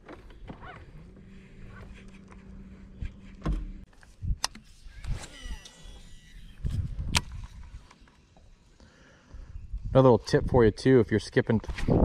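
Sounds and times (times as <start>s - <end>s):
electric trolling motor humming: 0.2s - 3.8s, 4.7s - 7.0s
fishing reel spool whirring: 4.7s - 6.9s.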